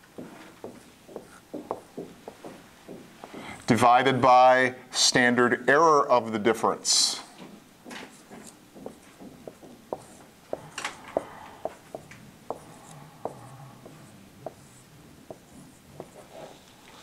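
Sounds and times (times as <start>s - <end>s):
marker scratching on whiteboard: 0.2s - 3.6s, 8.1s - 16.7s.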